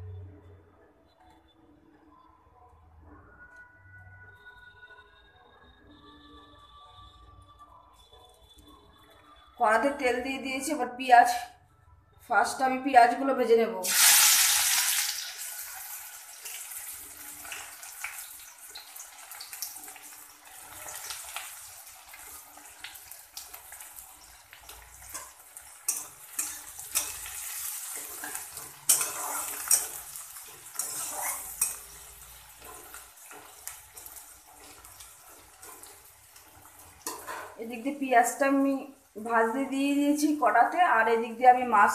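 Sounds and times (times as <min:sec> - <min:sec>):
onions sizzling in oil: 0:13.8 - 0:41.0
metal spatula scraping pan: 0:24.0 - 0:38.0.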